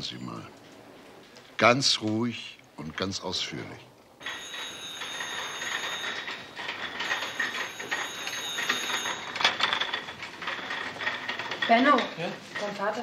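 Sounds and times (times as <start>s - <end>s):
metal trolley rattling: 4.2s - 13.0s
sharp trolley clack: 4.2s - 13.0s.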